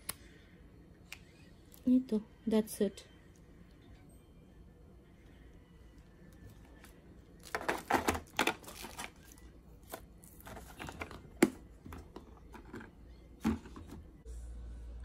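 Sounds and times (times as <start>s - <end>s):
packaging rustling: 7.4s - 11.3s
items clattering: 7.4s - 14.1s.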